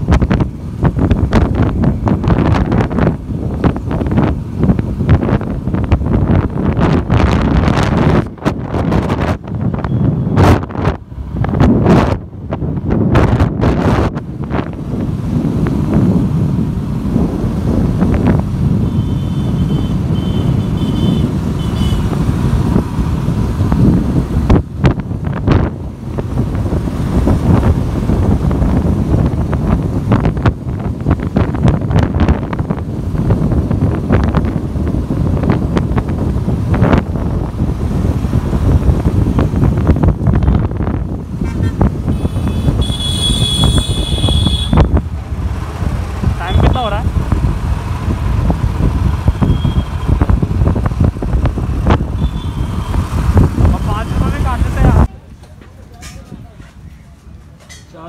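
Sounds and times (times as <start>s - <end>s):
wind buffeting microphone: 0.0s - 55.4s
motorcycle engine rumble: 0.0s - 58.0s
vehicle horn: 18.8s - 22.1s, 41.4s - 44.9s, 52.2s - 52.9s.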